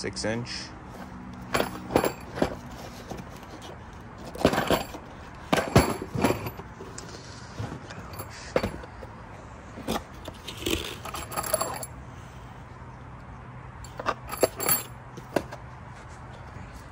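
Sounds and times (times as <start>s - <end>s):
metal screws clinking: 1.0s - 9.1s, 9.8s - 12.0s, 13.8s - 15.5s.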